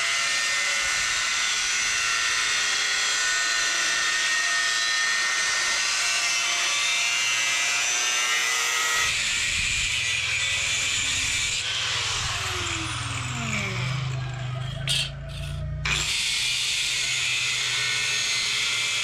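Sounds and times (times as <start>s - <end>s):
angle grinder cutting steel: 0.0s - 19.0s
low hum: 9.6s - 16.1s.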